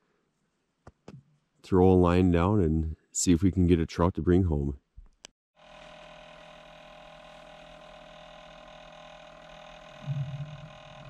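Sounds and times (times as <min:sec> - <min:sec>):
electronic hum: 0:05.6 - 0:11.0
low rumble: 0:10.0 - 0:11.0.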